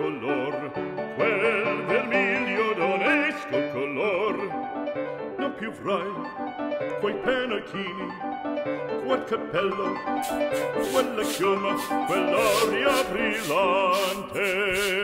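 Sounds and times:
operatic voice singing: 0.0s - 4.6s, 6.9s - 8.2s, 9.0s - 10.0s, 10.6s - 15.0s
piano: 0.0s - 15.0s.

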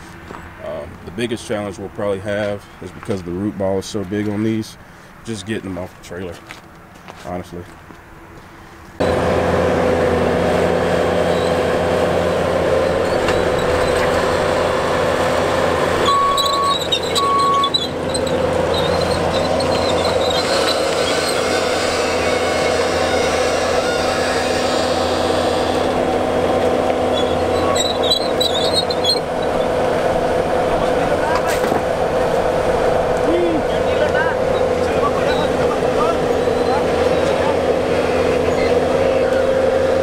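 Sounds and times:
diesel engine running: 8.4s - 40.0s
tracks squealing: 10.8s - 40.0s
short beeps: 16.1s - 17.7s.

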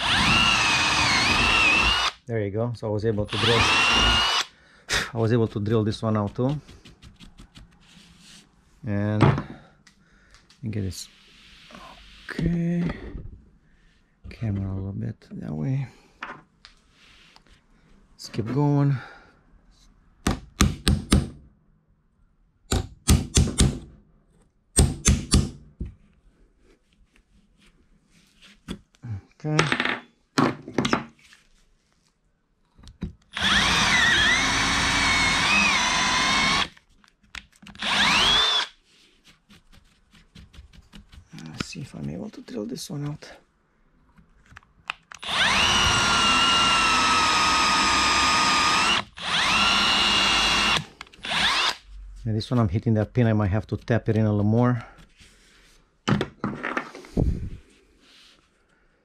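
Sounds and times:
power drill whining: 0.0s - 2.2s, 3.3s - 4.5s, 33.3s - 36.7s, 37.8s - 38.8s, 45.2s - 51.9s.

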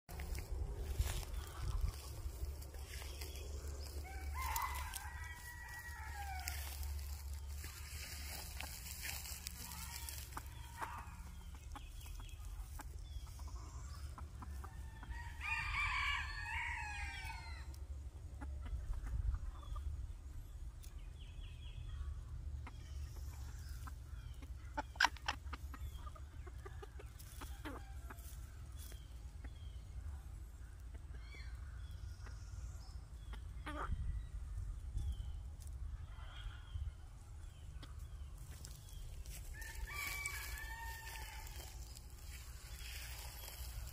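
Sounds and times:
steady low rumble: 0.1s - 14.6s, 31.6s - 43.9s
rooster crowing: 4.0s - 6.9s, 15.1s - 17.7s, 39.6s - 41.8s.

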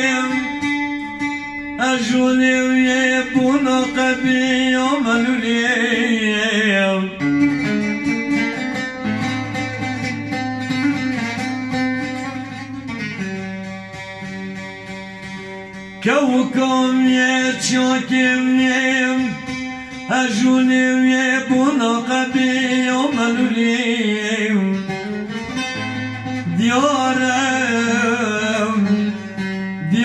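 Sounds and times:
man singing into a microphone: 0.0s - 1.0s, 1.8s - 7.6s, 16.0s - 25.2s, 26.4s - 30.0s
plucked saz: 0.0s - 30.0s.

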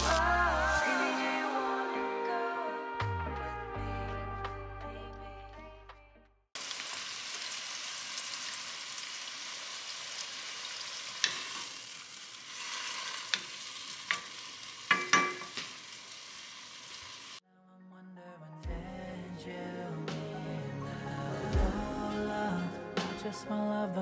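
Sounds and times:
food sizzling in a pan: 0.0s - 0.9s, 6.6s - 17.4s
spatula knocking and scraping pan: 14.9s - 15.7s.

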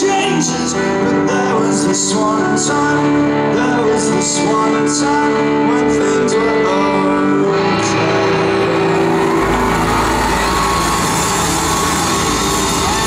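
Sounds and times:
crowd cheering and shouting: 7.9s - 13.0s.

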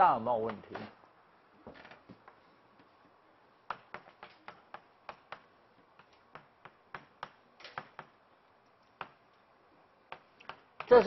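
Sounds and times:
chalk tapping on chalkboard: 3.7s - 8.2s, 9.0s - 9.2s, 10.1s - 11.0s.

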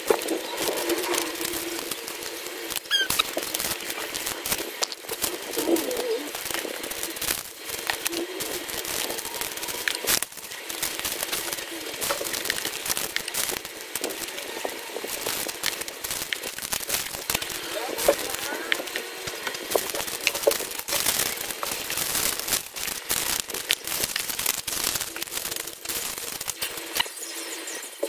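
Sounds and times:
plastic bags crinkling: 0.0s - 27.1s
faint low cooing calls: 5.5s - 6.4s.

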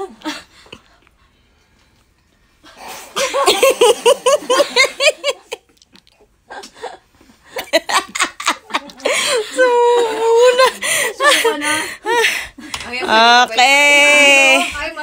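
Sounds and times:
women laughing: 3.2s - 5.7s, 6.5s - 12.4s.

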